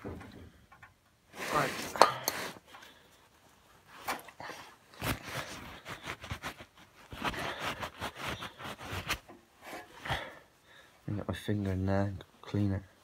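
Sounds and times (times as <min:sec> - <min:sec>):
hands rubbing and scraping metal: 0:01.3 - 0:02.8, 0:03.8 - 0:10.0.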